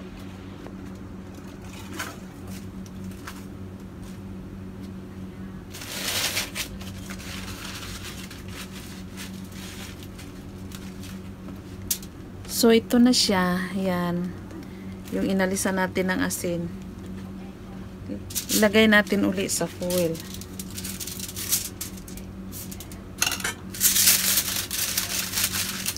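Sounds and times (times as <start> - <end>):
steady low hum: 0.0 - 25.9
aluminium foil crinkling: 5.7 - 12.1, 18.1 - 25.9.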